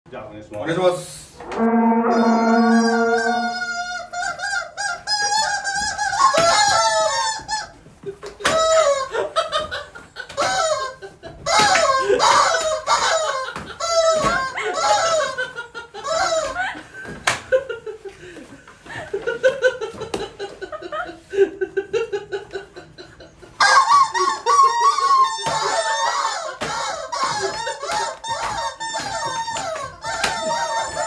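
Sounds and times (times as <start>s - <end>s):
rubber chicken toys squawking: 4.1s - 7.8s, 10.3s - 16.6s, 23.6s - 31.0s.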